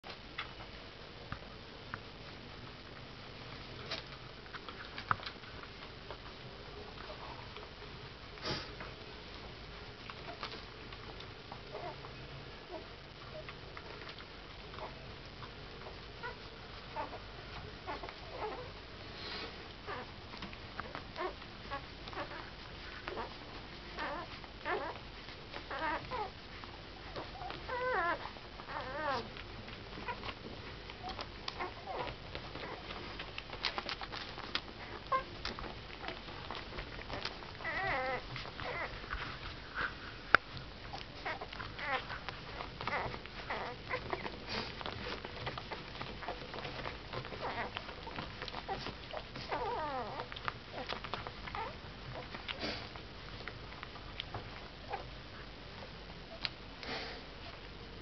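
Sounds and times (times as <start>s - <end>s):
puppies squeaking and whimpering: 16.2s - 17.2s, 17.8s - 18.7s, 19.9s - 20.1s, 20.8s - 26.4s, 27.0s - 30.4s, 31.0s - 39.0s, 40.9s - 52.8s, 54.3s - 55.1s.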